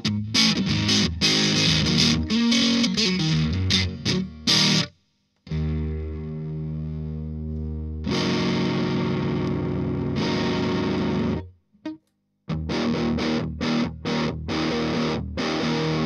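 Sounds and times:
distorted electric guitar chords: 0.0s - 4.9s, 5.5s - 16.0s.

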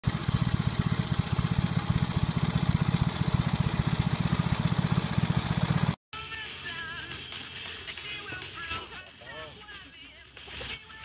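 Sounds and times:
riding lawn mower engine running: 0.0s - 6.0s.

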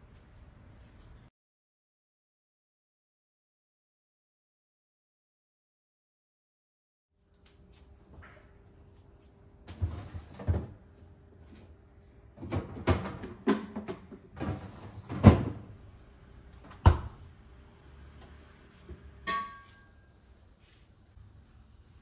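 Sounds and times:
items clunking and knocking: 9.6s - 10.9s, 12.3s - 15.8s
cabinet doors opening and shutting: 12.4s - 15.8s.

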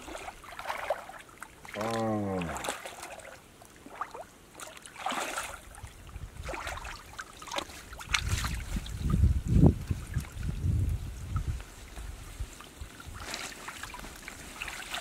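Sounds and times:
water sloshing and splashing: 0.0s - 15.0s
low falling vocal sound: 1.8s - 2.6s.

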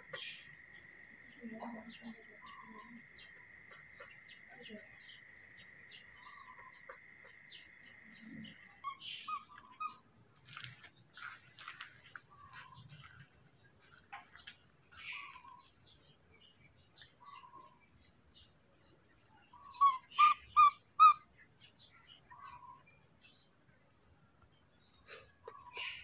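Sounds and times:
infant monkey squeaky calls: 8.8s - 10.0s, 19.6s - 21.2s, 25.4s - 26.0s.

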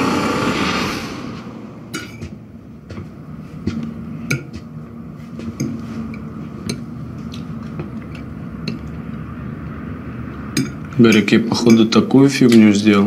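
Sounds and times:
metal fork clinking on a plate: 10.6s - 12.0s.

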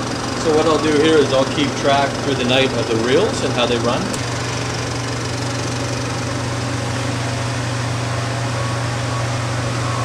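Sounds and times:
film projector whirring: 0.0s - 10.0s
low hum: 2.9s - 10.0s.

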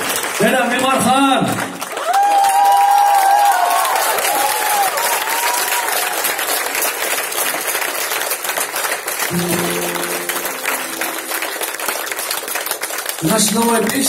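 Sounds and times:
audience applauding: 0.0s - 14.0s
acoustic guitar notes: 9.3s - 12.5s.

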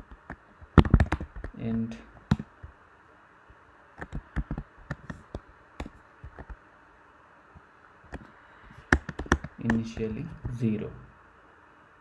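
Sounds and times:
faint room hiss: 0.0s - 12.0s
computer keyboard clicks: 0.2s - 1.6s, 2.3s - 2.5s, 4.0s - 6.6s, 8.9s - 10.2s.

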